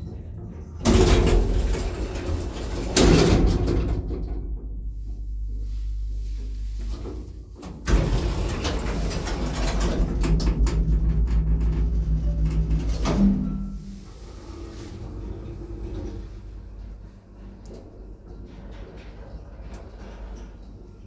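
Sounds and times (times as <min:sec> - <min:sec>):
lift machinery rumbling and rattling: 0:00.0 - 0:21.0
lift doors shutting with bang: 0:00.7 - 0:04.5, 0:06.9 - 0:14.6
steady hum: 0:04.6 - 0:09.2.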